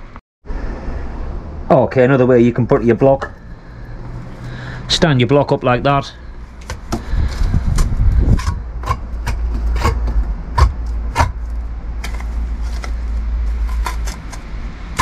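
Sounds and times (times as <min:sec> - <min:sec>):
low rumble: 0:06.3 - 0:15.0
trowel tapping and scraping: 0:07.8 - 0:15.0.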